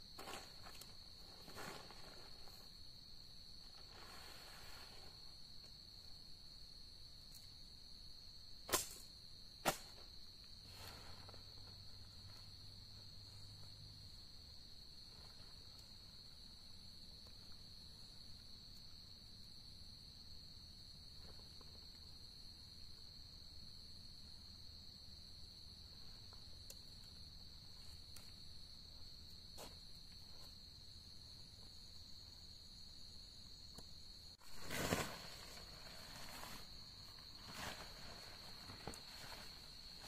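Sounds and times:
crickets trilling: 0:00.0 - 0:40.0
tent fabric rustling: 0:00.2 - 0:02.7, 0:34.4 - 0:40.0.

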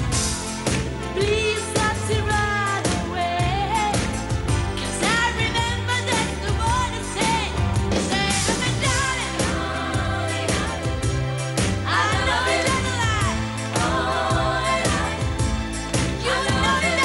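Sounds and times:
bass: 0:00.0 - 0:17.0
steady drum beat: 0:00.0 - 0:17.0
woman singing with vibrato: 0:16.2 - 0:17.0.

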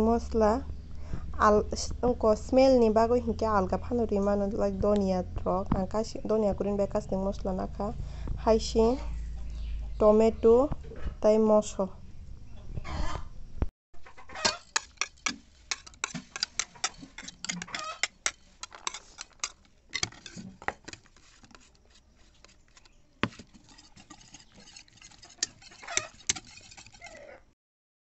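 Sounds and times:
utensils tapping tray and bowl: 0:14.4 - 0:21.7, 0:23.2 - 0:27.0
whisk clinking against bowl: 0:14.4 - 0:21.7, 0:22.3 - 0:27.2.

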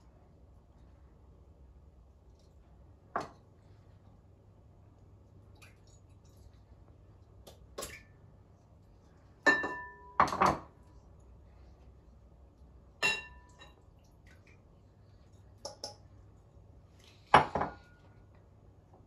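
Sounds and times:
glass bowls clinking: 0:09.4 - 0:10.6, 0:13.0 - 0:13.8.

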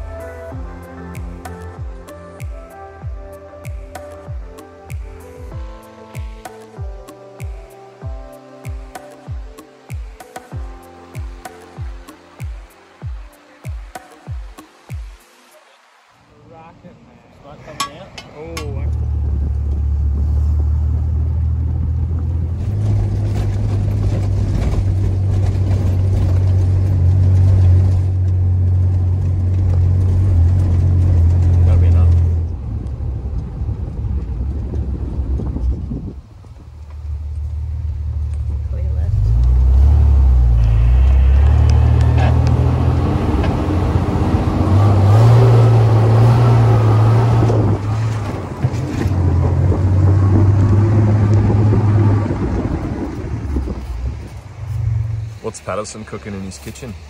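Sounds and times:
rough tyre and body noise: 0:17.5 - 0:57.0
engine droning under load: 0:37.0 - 0:55.4.

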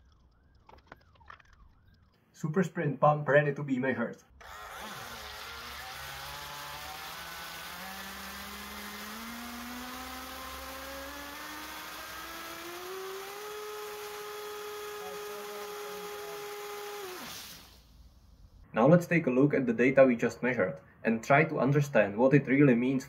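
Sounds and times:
motor and impeller whine: 0:04.4 - 0:18.2
water jet hissing: 0:15.9 - 0:18.0.

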